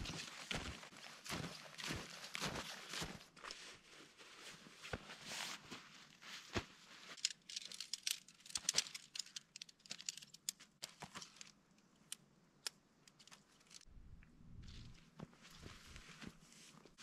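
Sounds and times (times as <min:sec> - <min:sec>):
fabric rustling and crinkling: 0:00.0 - 0:09.4, 0:14.6 - 0:17.0
sharp clicks and rattles: 0:07.2 - 0:13.9.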